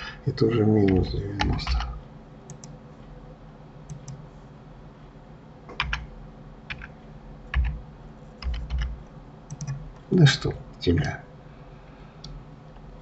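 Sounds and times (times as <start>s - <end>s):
keyboard keystrokes: 2.5s - 2.8s, 3.9s - 4.2s, 5.7s - 6.1s, 6.7s - 7.8s, 8.4s - 9.8s.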